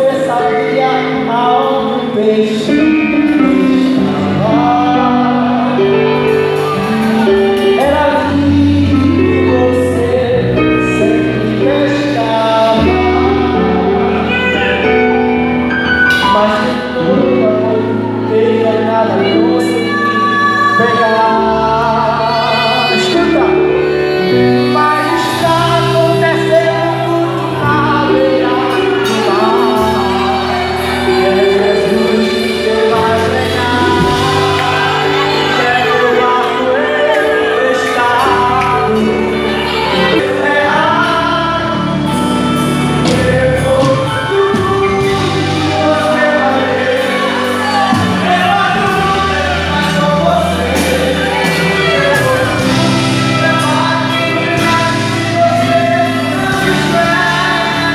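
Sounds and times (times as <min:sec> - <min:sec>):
gospel singing with instruments: 0:00.0 - 0:57.9.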